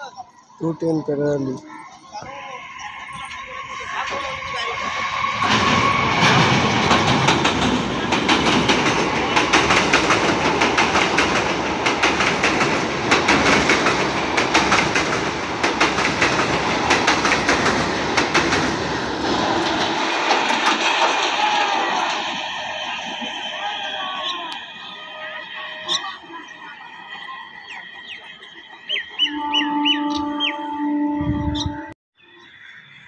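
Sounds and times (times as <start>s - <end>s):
electric train passing: 0.0s - 33.0s
train wheels clattering: 3.2s - 29.2s.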